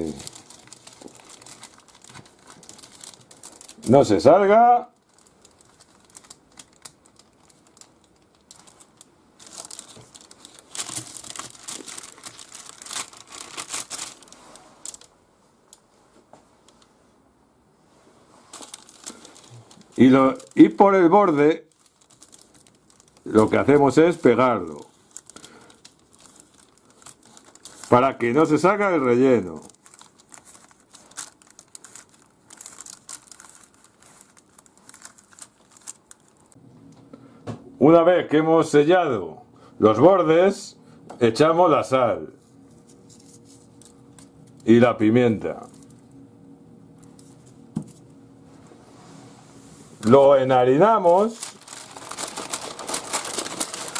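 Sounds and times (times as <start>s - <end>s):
baking paper crinkling: 0.0s - 15.9s, 18.3s - 36.6s, 42.6s - 44.8s, 45.4s - 46.0s, 47.0s - 48.1s, 50.0s - 53.9s.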